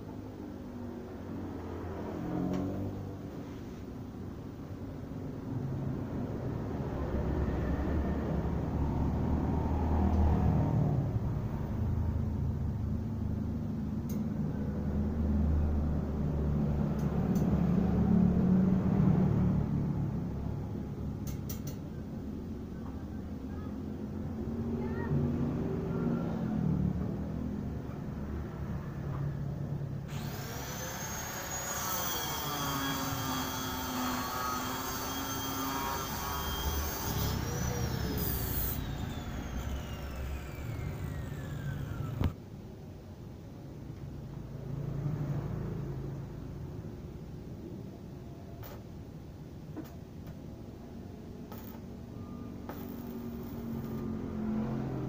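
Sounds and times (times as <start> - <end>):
angle grinder cutting iron rod: 30.1 - 42.3, 52.7 - 55.0
grinder disc spinning down: 30.1 - 42.3, 52.7 - 55.0.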